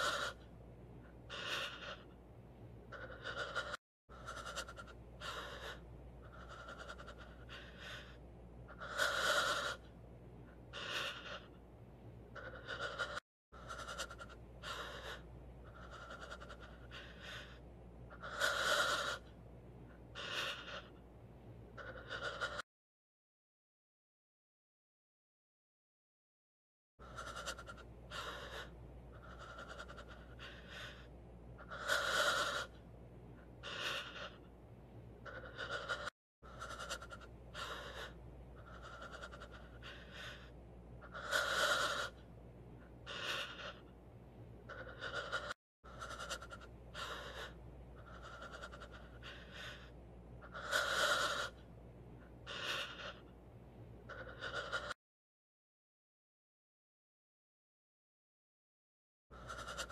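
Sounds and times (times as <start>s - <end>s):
person panting heavily: 0.0s - 0.4s, 1.2s - 2.2s, 2.9s - 11.6s, 12.3s - 19.2s, 20.1s - 21.0s, 27.0s - 32.7s, 33.4s - 34.4s, 35.2s - 42.2s, 43.0s - 43.8s, 44.7s - 51.5s, 52.4s - 53.2s.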